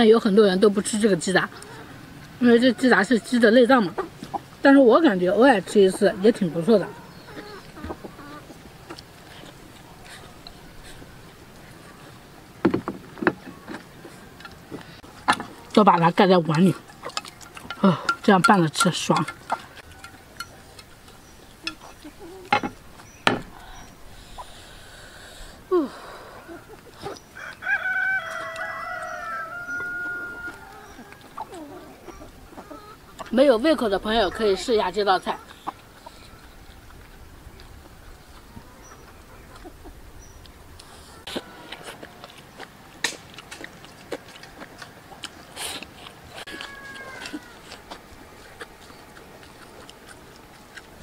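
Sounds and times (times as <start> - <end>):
chewing: 5.6 - 12.3, 13.3 - 24.8, 26.4 - 33.4, 34.4 - 51.0
chopsticks clicking on a bowl: 16.5 - 21.8
drawn-in breath: 23.5 - 26.6
rooster crowing: 27.4 - 31.3, 46.5 - 47.7
slurping: 40.8 - 51.0.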